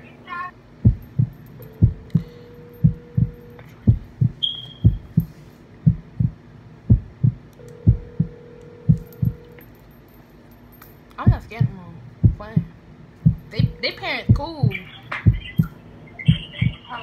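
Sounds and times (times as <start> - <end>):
heartbeat thumps: 0.8 - 9.5, 11.2 - 16.8
phone ringback tone: 7.6 - 9.6.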